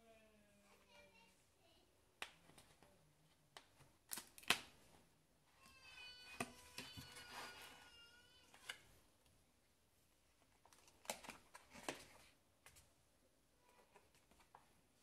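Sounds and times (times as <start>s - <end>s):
cardboard book pages handled: 2.2s - 8.9s, 10.3s - 12.9s, 13.7s - 14.9s.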